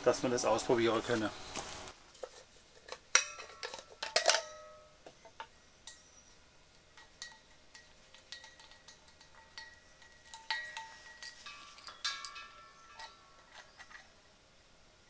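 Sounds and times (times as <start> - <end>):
light taps with metallic ring: 3.1 - 14.1.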